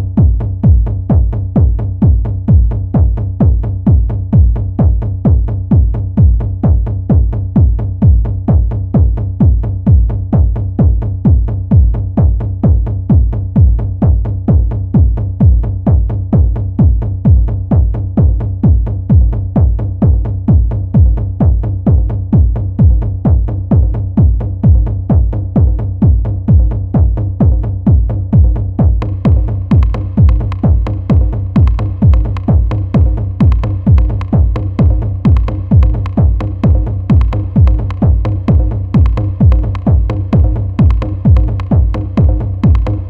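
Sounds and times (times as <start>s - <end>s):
acid techno track: 0.0s - 43.0s
drum-machine percussion: 0.0s - 43.0s
four-on-the-floor kick drum: 0.0s - 43.0s.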